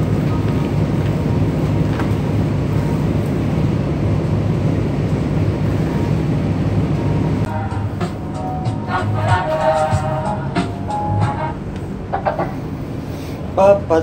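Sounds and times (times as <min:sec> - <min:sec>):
ship machinery drone: 0:00.0 - 0:14.0
background music: 0:07.5 - 0:12.6.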